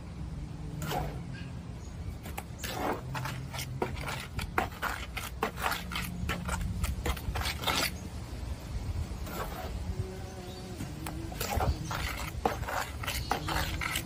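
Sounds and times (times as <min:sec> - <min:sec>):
hand tool scraping mortar: 0:00.8 - 0:01.2, 0:02.2 - 0:08.0, 0:09.2 - 0:09.9, 0:10.8 - 0:14.0.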